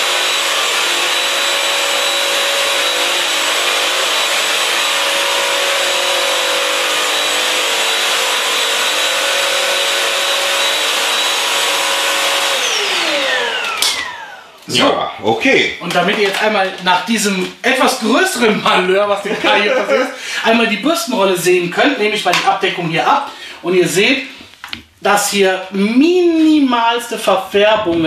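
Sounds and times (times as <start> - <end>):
floor cleaner motor whining: 0.0 - 14.9, 19.0 - 20.4
motor winding down: 0.0 - 15.0.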